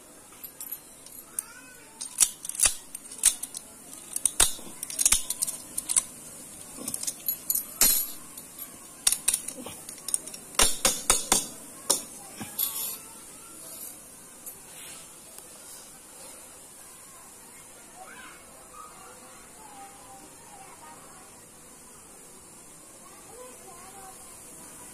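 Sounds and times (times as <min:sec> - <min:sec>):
metal padlock clinking and rattling: 0:00.4 - 0:13.0.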